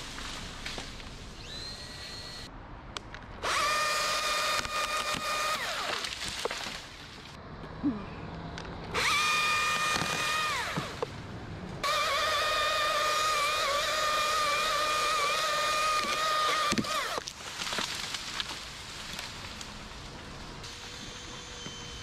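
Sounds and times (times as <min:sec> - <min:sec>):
chainsaw whining: 0:03.4 - 0:06.1, 0:08.9 - 0:11.0, 0:11.8 - 0:17.2.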